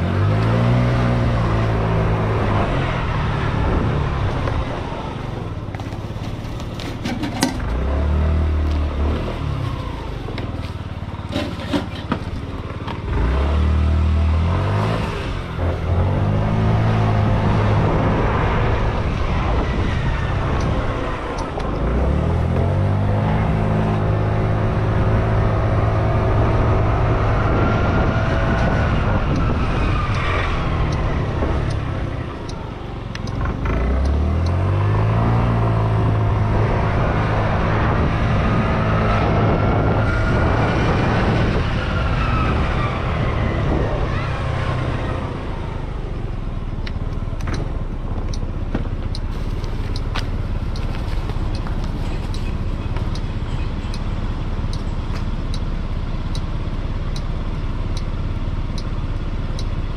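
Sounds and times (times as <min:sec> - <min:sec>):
wind and road noise: 0:00.0 - 0:59.9
light ticks: 0:31.6 - 0:31.8, 0:32.4 - 0:34.6, 0:46.8 - 0:59.8.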